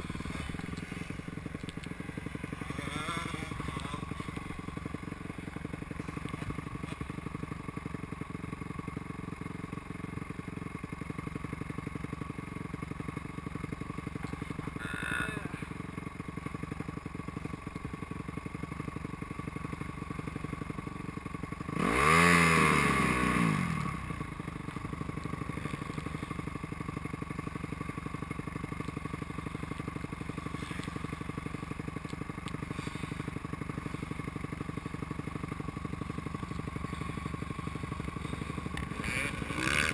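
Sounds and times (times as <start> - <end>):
motocross bike passing by: 0.0 - 7.9, 21.7 - 27.4, 28.3 - 39.9
motocross bike engine idling: 0.0 - 39.9.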